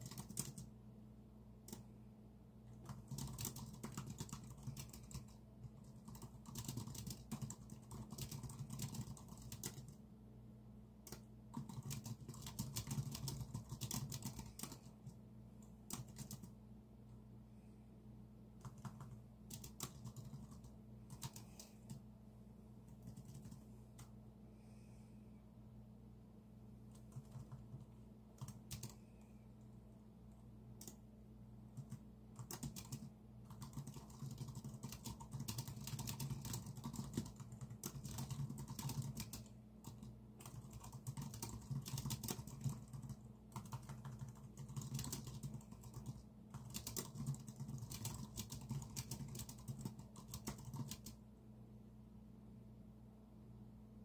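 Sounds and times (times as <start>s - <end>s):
typing on keyboard: 0.0s - 0.7s, 2.7s - 10.0s, 11.0s - 15.2s, 15.9s - 16.6s, 18.6s - 22.0s, 22.9s - 24.1s, 26.9s - 29.0s, 31.8s - 51.2s
low steady hum: 0.0s - 54.0s.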